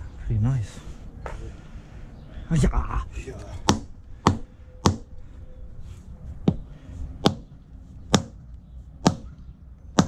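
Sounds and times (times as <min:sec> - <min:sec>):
rubber mallet knocking on stone: 0:03.7 - 0:05.1, 0:07.2 - 0:07.5, 0:08.1 - 0:08.4, 0:09.0 - 0:09.3.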